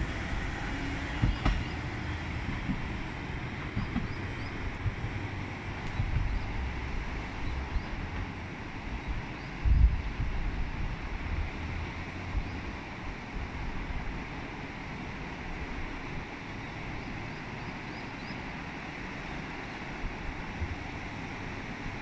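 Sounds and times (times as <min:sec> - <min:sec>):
wind rumble on microphone: 0:00.0 - 0:14.4, 0:19.9 - 0:22.0
river rushing over gravel: 0:00.3 - 0:17.9, 0:18.5 - 0:22.0.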